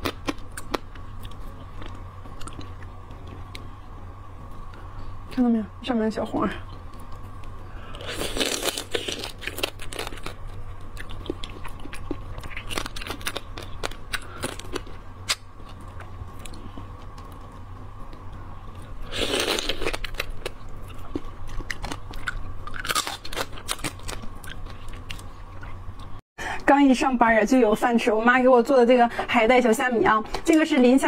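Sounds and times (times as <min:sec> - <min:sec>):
crunching and chewing crab shell: 0:00.0 - 0:03.7, 0:06.8 - 0:26.2.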